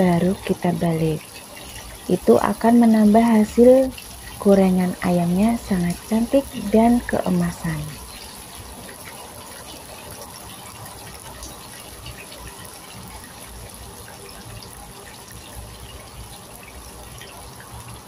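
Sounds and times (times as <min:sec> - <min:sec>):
food deep-frying in hot oil: 0:00.0 - 0:18.0.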